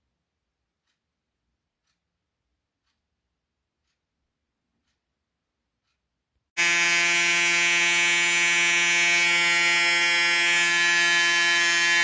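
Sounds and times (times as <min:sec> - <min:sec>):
electric shaver buzzing: 0:06.6 - 0:12.0.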